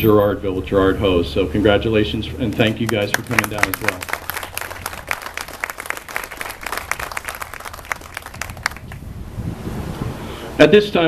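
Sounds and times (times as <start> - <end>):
crowd applauding: 2.6 - 9.0.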